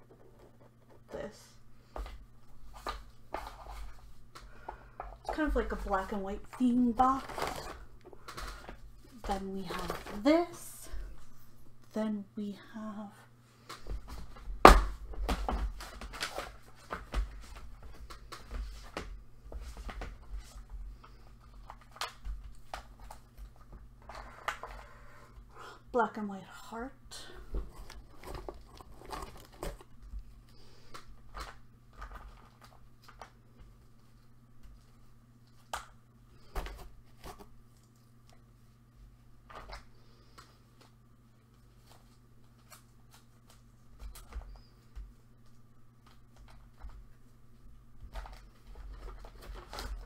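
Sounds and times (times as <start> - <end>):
faint steady hum: 0.0 - 50.0
hands rummaging craft items: 2.7 - 11.3, 27.5 - 33.4.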